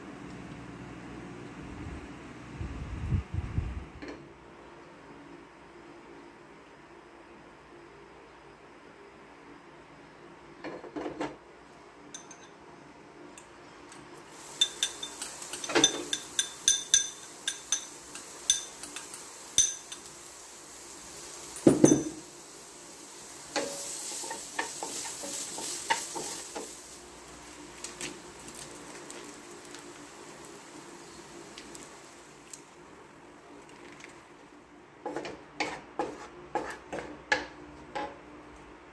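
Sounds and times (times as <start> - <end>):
onion frying in oil: 14.1 - 37.6.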